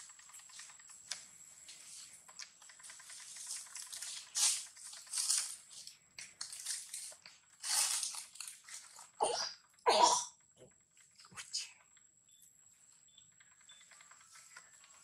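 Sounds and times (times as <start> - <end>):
leaves and gravel rustling: 3.2 - 9.2.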